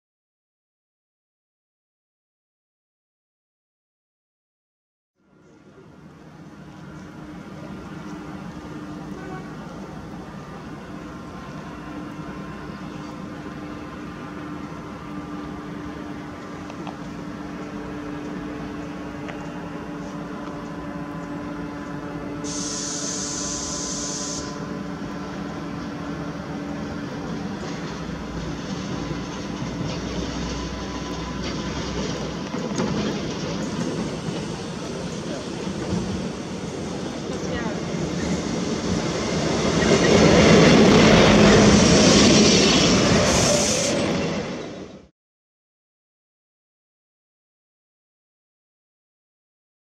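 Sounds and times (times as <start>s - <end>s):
diesel railcar approaching: 5.2s - 45.1s
hiss: 22.4s - 24.6s, 43.3s - 44.1s.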